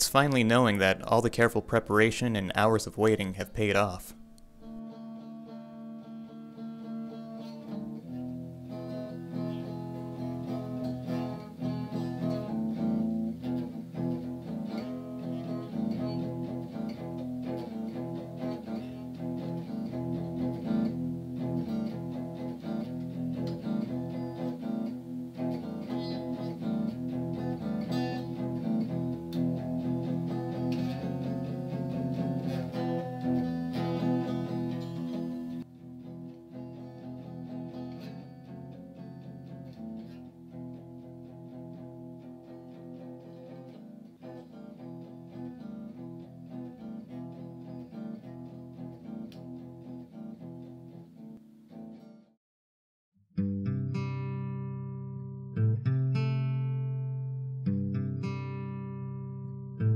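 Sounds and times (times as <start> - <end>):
acoustic guitar strumming: 0.0 - 52.1.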